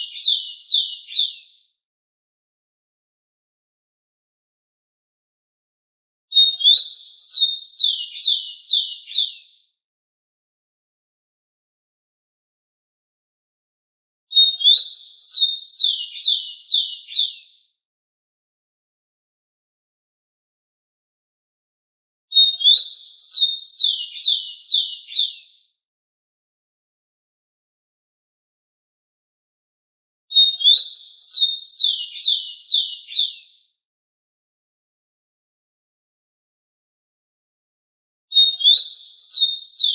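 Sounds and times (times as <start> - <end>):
sparrow singing whistles: 0.0 - 1.6, 6.3 - 9.6, 14.3 - 17.6, 22.3 - 25.6, 30.3 - 33.6, 38.3 - 39.9.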